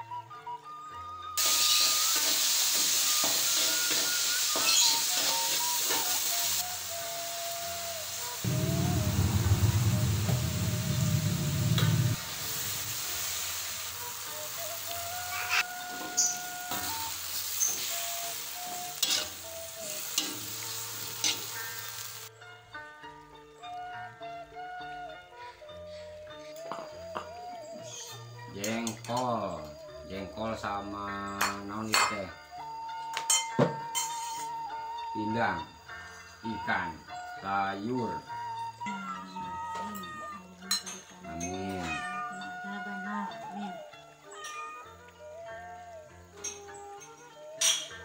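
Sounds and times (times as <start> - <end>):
hot oil sizzling in a wok: 1.4 - 22.3, 30.4 - 39.7, 40.4 - 42.5, 44.4 - 48.0
metal spatula scraping pan: 19.0 - 19.3.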